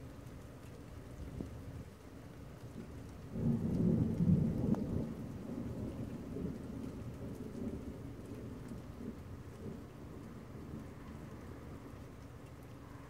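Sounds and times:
steady rain: 0.0s - 13.0s
thunder rumbling: 2.8s - 11.8s.

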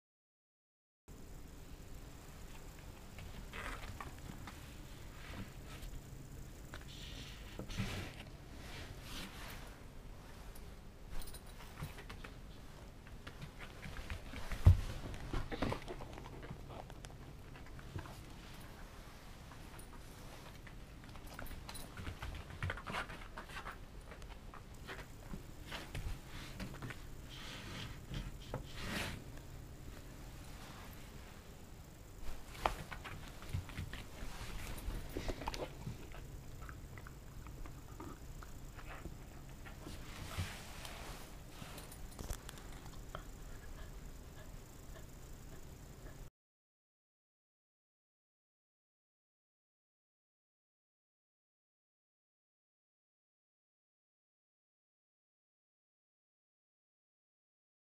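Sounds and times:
faint rustling: 1.8s - 45.6s.

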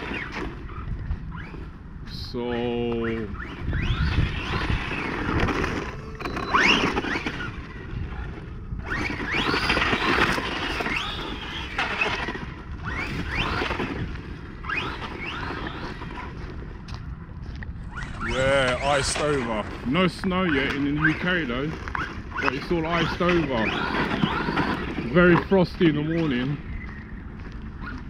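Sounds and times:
electric motor whining: 0.0s - 17.0s, 20.3s - 28.0s
tyres spinning in mud: 3.2s - 16.8s, 18.2s - 26.6s
low rumble: 15.2s - 21.0s.

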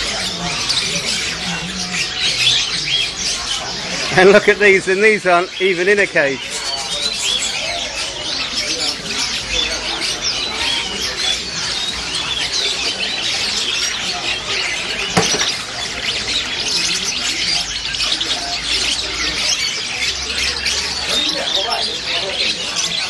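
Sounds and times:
birds chirping and squawking: 0.0s - 23.0s.

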